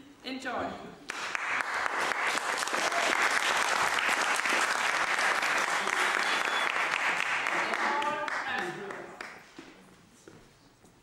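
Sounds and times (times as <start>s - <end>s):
audience applauding: 1.1s - 9.5s.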